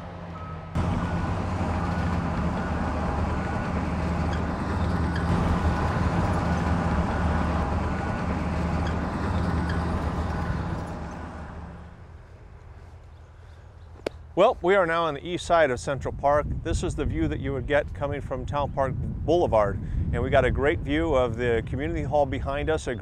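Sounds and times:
heavy machinery engine humming: 0.0s - 13.3s.

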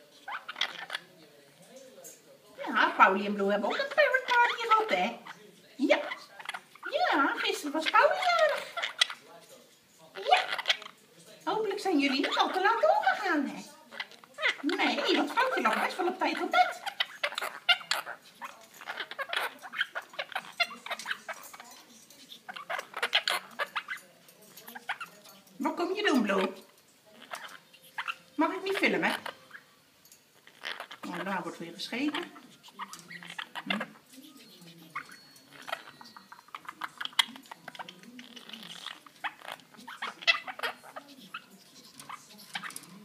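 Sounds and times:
parrots chattering: 0.0s - 43.0s
beak clicks and taps on cage: 32.8s - 43.0s.

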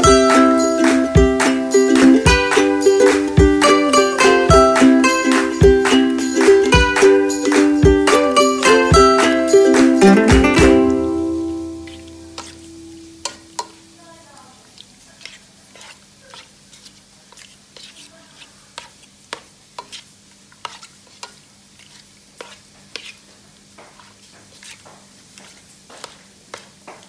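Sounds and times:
faint sizzle: 10.7s - 27.0s
spoon scraping pot: 11.8s - 13.7s, 14.8s - 23.3s, 24.0s - 24.8s.

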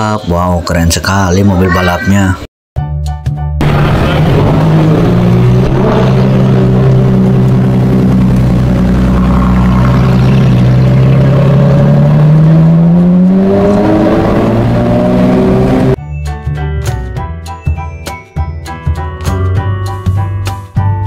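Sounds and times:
sports car engine accelerating: 3.6s - 16.0s.

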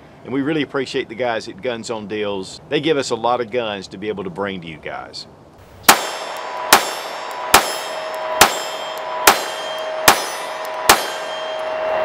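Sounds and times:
metallic ringing: 5.8s - 12.0s
pistol shots: 5.9s - 11.5s.

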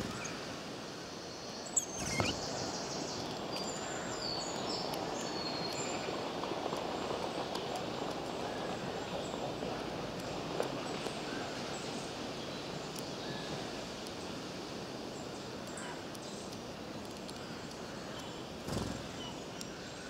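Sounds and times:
steady outdoor hiss: 0.0s - 20.0s
birds chirping and whistling: 1.7s - 2.8s
brief flutter: 1.8s - 2.5s.

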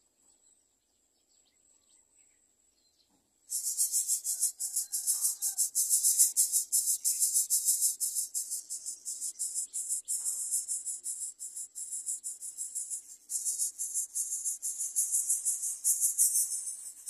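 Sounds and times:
faint chirps: 3.5s - 17.0s
insects buzzing: 3.5s - 17.0s.

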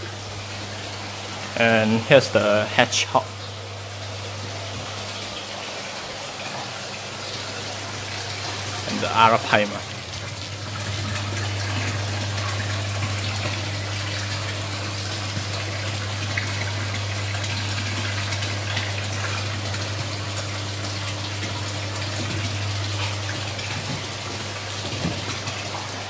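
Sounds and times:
water running into pond: 0.0s - 26.0s.

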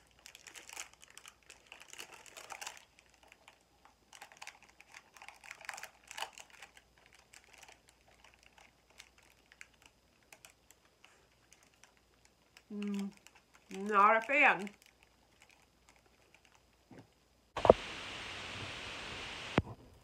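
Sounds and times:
wrapper crinkling: 0.0s - 16.8s.

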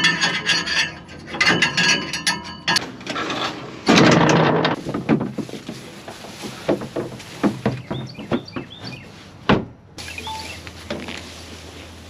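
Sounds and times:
metal scraping and rubbing: 0.0s - 4.8s.

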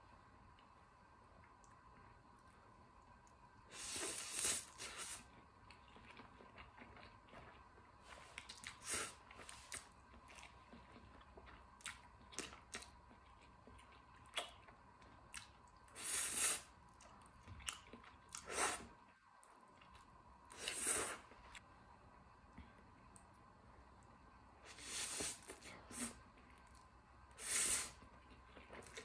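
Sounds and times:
wet chewing with small clicks: 5.2s - 16.0s, 16.8s - 20.6s, 22.6s - 24.2s, 25.4s - 27.0s, 28.0s - 29.0s.

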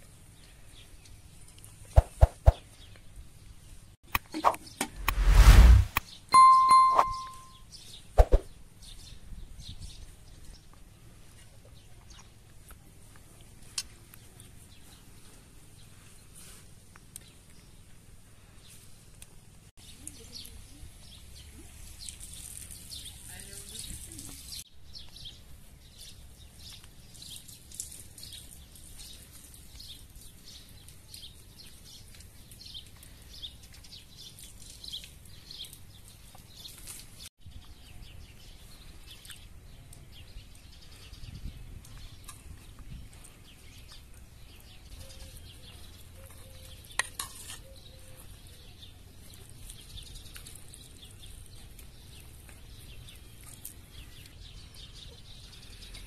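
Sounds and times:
quiet outdoor background: 0.0s - 56.0s
sharp clink of plate: 6.4s - 7.6s
food scraping on plates: 47.0s - 47.7s.

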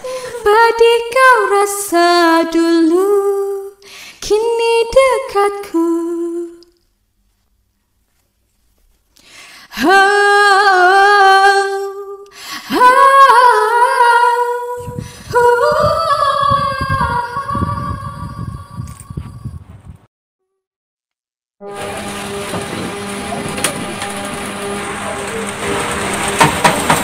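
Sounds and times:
low musical accompaniment: 21.6s - 27.0s.

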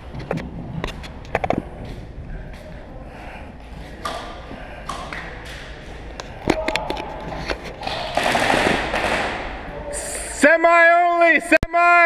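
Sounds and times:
airsoft gunfire: 7.8s - 9.7s.

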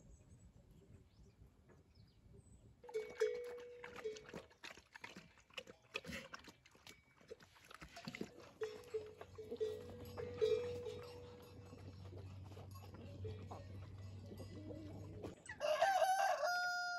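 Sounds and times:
dogs chewing and lapping: 2.9s - 15.6s
drawn-out animal call: 8.3s - 16.8s.

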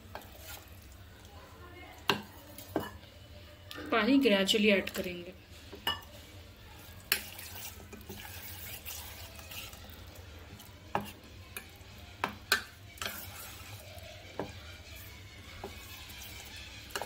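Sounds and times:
spoon stirring wet batter: 0.0s - 17.0s
spoon clinking against metal pot: 2.1s - 3.0s.

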